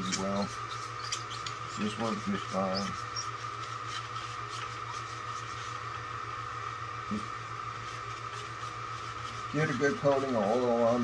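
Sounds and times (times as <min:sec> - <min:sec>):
paper towel wiping glass: 0:00.0 - 0:05.8, 0:07.8 - 0:11.0
background hum with thin whine: 0:00.0 - 0:11.0.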